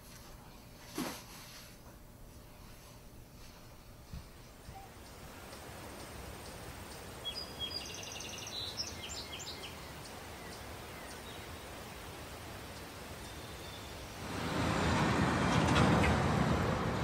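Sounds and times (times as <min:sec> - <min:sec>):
outdoor background hiss: 0:00.0 - 0:17.0
birds chirping and trilling: 0:04.4 - 0:14.5.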